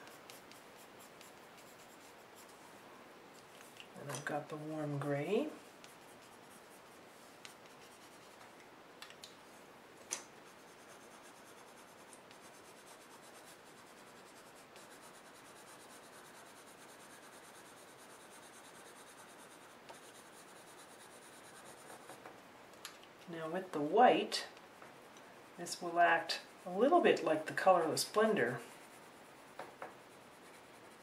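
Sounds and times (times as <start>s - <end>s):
pencil scratching on paper: 0.0s - 2.7s, 4.3s - 8.4s, 10.4s - 22.2s, 25.7s - 31.0s.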